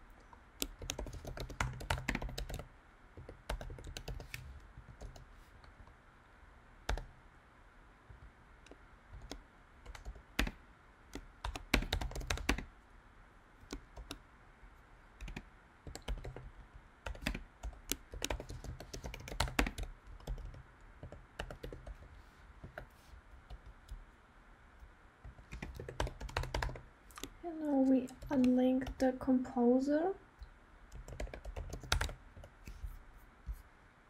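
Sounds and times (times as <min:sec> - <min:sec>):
keyboard typing: 0:00.6 - 0:05.3, 0:06.9 - 0:07.1, 0:09.1 - 0:12.7, 0:13.6 - 0:14.2, 0:15.2 - 0:24.0, 0:25.2 - 0:29.2, 0:30.9 - 0:32.9.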